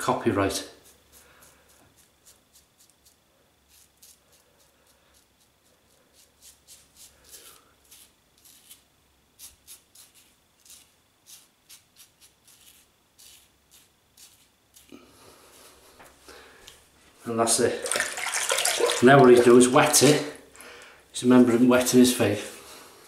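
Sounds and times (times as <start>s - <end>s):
razor scraping stubble: 0.5s - 16.1s.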